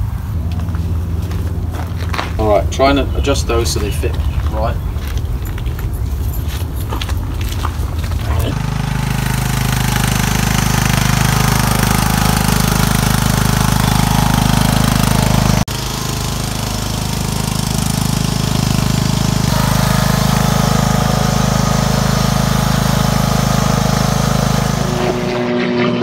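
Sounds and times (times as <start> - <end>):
lawn mower engine running: 7.3 - 25.9.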